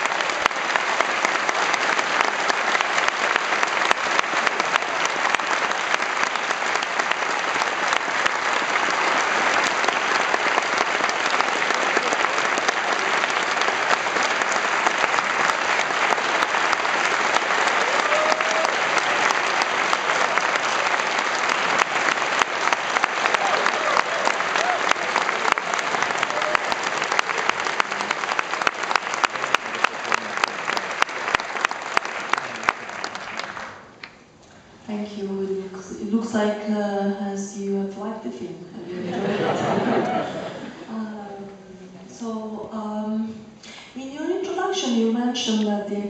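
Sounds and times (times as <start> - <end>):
audience applauding: 0.0 - 34.2, 39.1 - 40.9.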